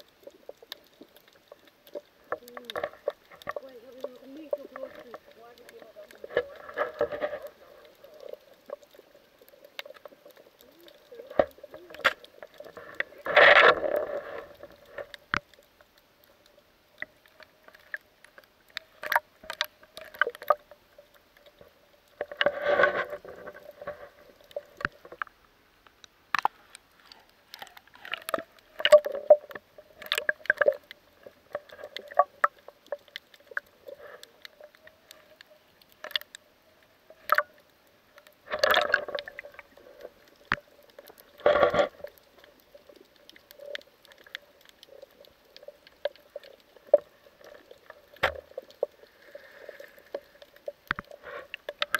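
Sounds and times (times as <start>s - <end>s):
faint steady hum: 0.0s - 51.9s
sharp underwater clicks and crackles: 0.0s - 51.9s.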